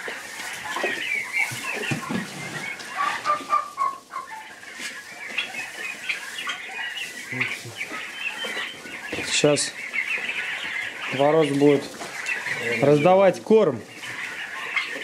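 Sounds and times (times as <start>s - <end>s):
turkey poults peeping: 0.0s - 15.0s.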